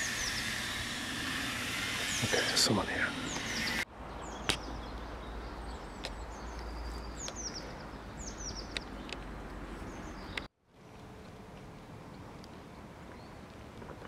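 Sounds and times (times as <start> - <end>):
small birds chirping: 0.0 - 10.5.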